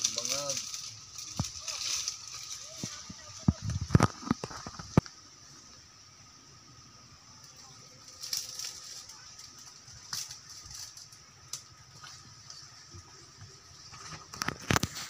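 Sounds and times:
footsteps crunching through dry fronds: 0.0s - 5.0s.

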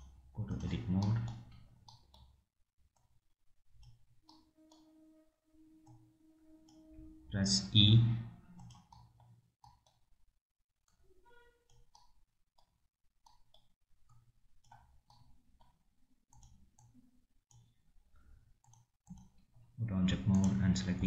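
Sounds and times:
computer mouse clicks: 0.0s - 2.4s, 3.8s - 4.9s, 8.6s - 10.1s, 11.6s - 19.4s, 20.3s - 20.6s.

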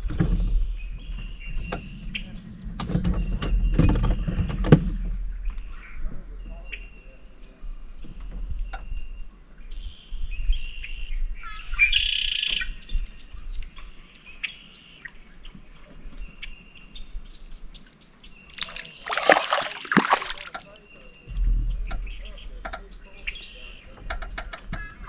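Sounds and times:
water splashing: 18.5s - 20.7s.

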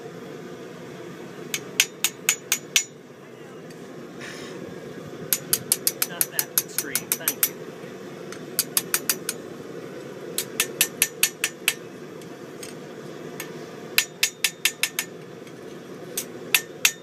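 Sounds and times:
hammer ringing on anvil: 16.6s - 17.0s.

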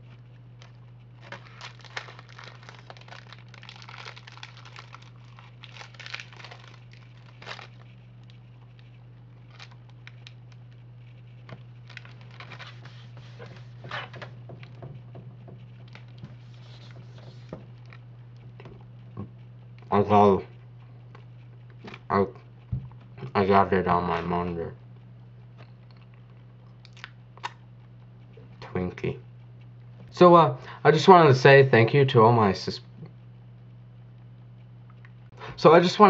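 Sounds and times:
steady low hum: 0.0s - 36.0s
soft rustling and crackling: 0.1s - 19.1s.

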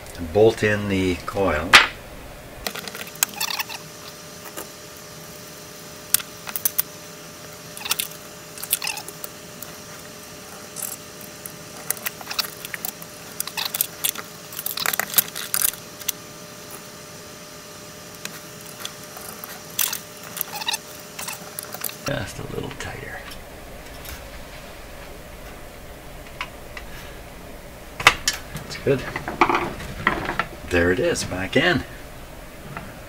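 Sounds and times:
faint steady hum: 0.0s - 33.0s
metallic clicks and scrapes: 7.8s - 9.7s, 10.5s - 16.8s, 18.2s - 22.1s.

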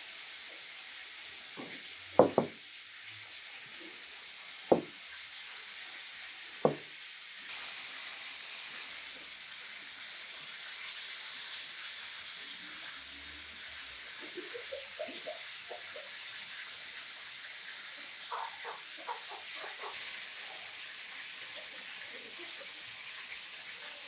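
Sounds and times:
steady hiss: 0.0s - 18.3s, 18.9s - 24.0s
glass knocking on cloth-covered table: 2.2s - 2.6s, 4.7s - 4.9s, 6.6s - 6.9s.

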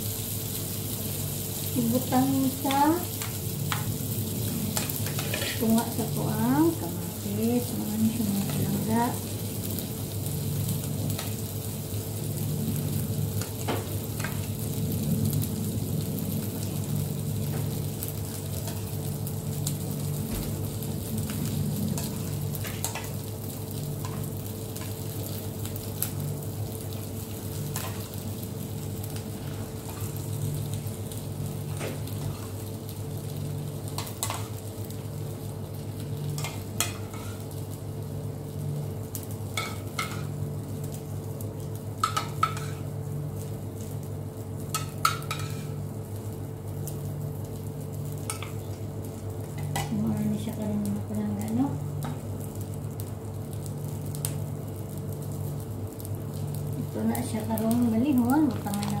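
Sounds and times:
food sizzling in a frying pan: 0.0s - 59.0s
steady low hum: 0.0s - 59.0s.

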